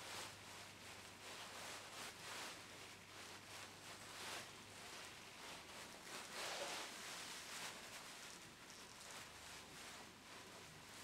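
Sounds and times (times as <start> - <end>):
soft rustling and scraping of tool: 0.0 - 11.0.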